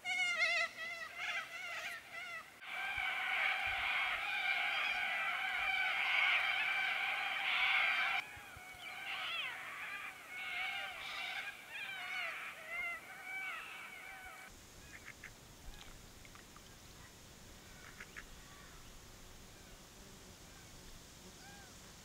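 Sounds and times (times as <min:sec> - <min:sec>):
faint bird calls: 0:00.0 - 0:19.8, 0:21.4 - 0:21.8
birds chorus whistling and chattering: 0:02.7 - 0:15.1.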